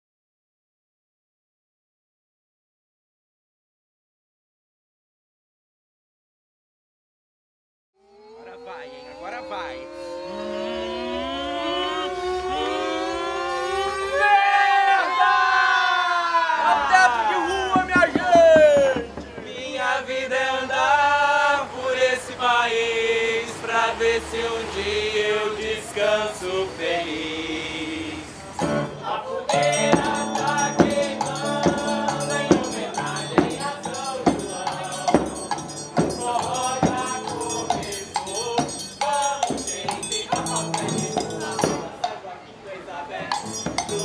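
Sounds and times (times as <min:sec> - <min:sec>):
man singing long notes: 0:08.0 - 0:14.2, 0:28.9 - 0:42.2
voices singing together: 0:08.0 - 0:44.0
acoustic guitar: 0:28.4 - 0:42.3, 0:43.2 - 0:44.0
triangle: 0:29.5 - 0:42.2
bass drum beat: 0:29.6 - 0:42.0.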